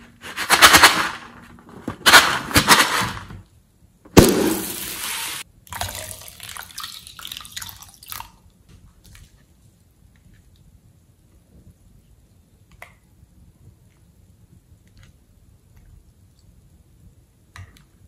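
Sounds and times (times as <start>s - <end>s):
liquid trickling and dripping: 5.6s - 9.3s
liquid gushing into a bowl: 5.7s - 8.4s.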